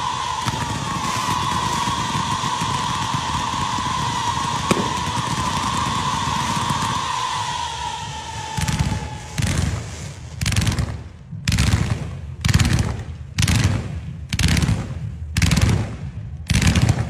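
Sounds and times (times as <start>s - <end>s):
falling whistle: 0.0s - 10.2s
fireworks crackling volleys: 0.0s - 17.0s.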